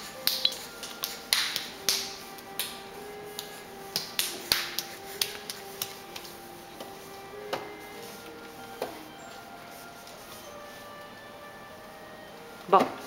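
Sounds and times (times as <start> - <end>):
baby palms slapping tile floor: 0.0 - 7.0
faint simple tune: 1.8 - 13.0.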